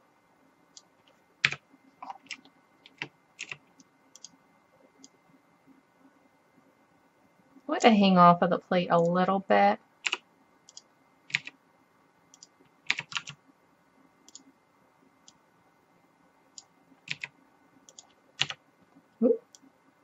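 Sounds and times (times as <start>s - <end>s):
computer keyboard keys tapping: 0.8s - 4.4s, 10.0s - 11.6s, 12.3s - 13.4s, 16.5s - 17.3s, 17.9s - 18.6s.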